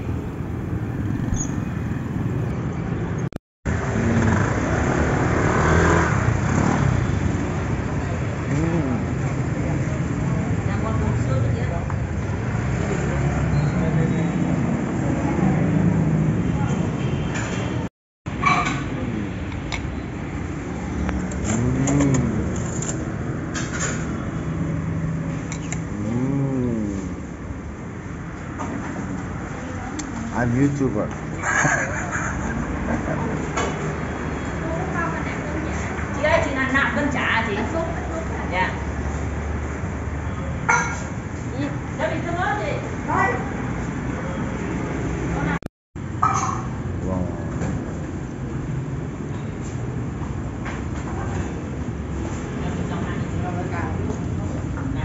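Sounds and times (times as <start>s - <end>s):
motor scooter engines running: 0.0s - 2.5s, 20.7s - 23.5s, 25.8s - 27.3s
road noise: 0.0s - 55.0s
vehicles passing: 0.0s - 55.0s.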